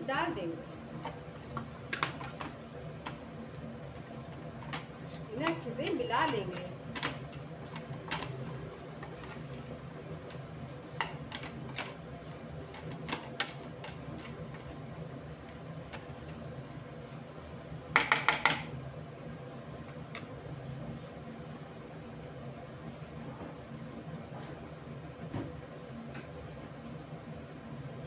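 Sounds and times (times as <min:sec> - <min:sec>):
induction cooktop hum: 0:00.0 - 0:28.0.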